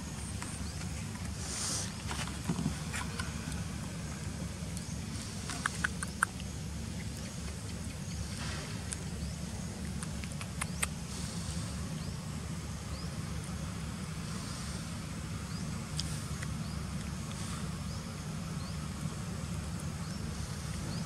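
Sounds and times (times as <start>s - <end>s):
low outdoor rumble: 0.0s - 21.0s
sharp clicks: 5.5s - 7.8s, 9.8s - 11.0s.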